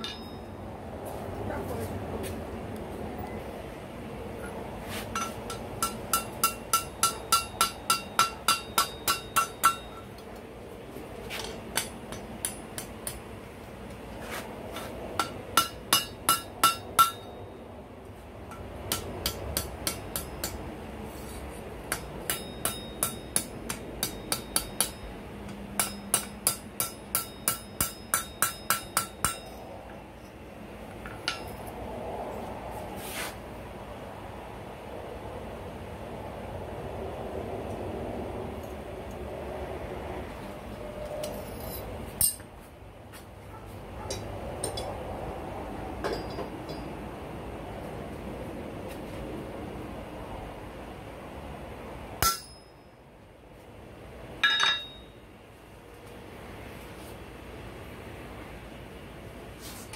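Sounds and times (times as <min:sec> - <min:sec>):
hammer striking steel on anvil: 0:00.0 - 0:00.6, 0:05.1 - 0:10.2, 0:11.4 - 0:13.3, 0:15.2 - 0:17.4, 0:18.5 - 0:20.7, 0:21.9 - 0:29.6, 0:31.0 - 0:31.6, 0:42.2 - 0:42.5, 0:46.0 - 0:46.9, 0:52.2 - 0:52.9, 0:54.4 - 0:55.2.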